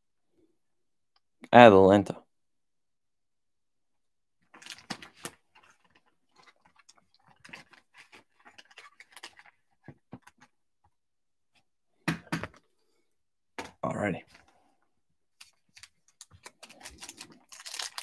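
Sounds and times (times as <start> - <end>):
plastic wrapper crinkling: 4.5 - 10.5, 15.4 - 18.0.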